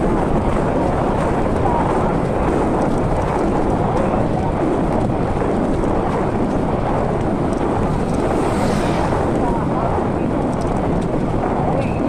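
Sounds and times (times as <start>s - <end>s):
wind rumble on microphone: 0.0s - 12.0s.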